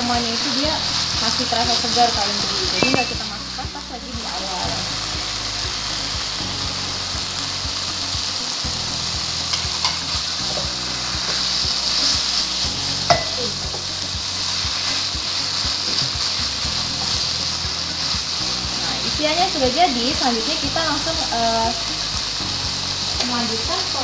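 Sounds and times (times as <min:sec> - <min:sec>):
food sizzling in a wok: 0:00.0 - 0:24.0
spatula knocking on pan: 0:13.1 - 0:13.8.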